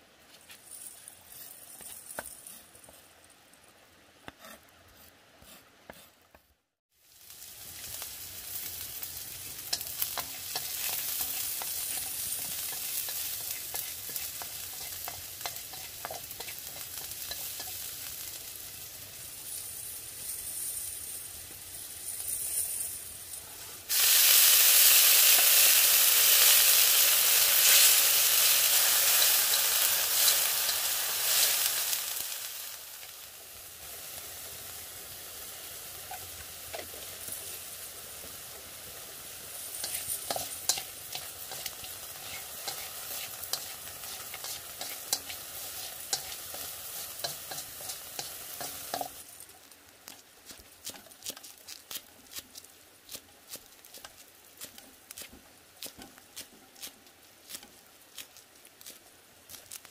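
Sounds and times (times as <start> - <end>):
food sizzling in hot oil: 6.9 - 59.9
stirring scrapes and ticks: 9.5 - 18.3, 39.6 - 59.9.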